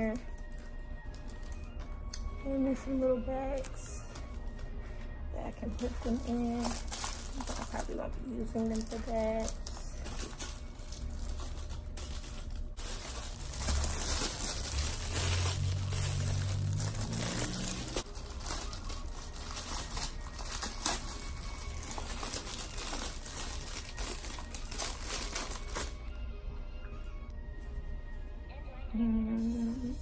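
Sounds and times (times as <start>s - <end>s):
low hum: 0.0s - 24.8s
packaging crinkling: 5.5s - 26.0s.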